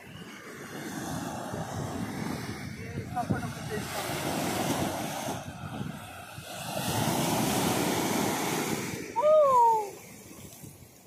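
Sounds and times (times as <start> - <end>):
sea waves breaking on shore: 0.0 - 11.0.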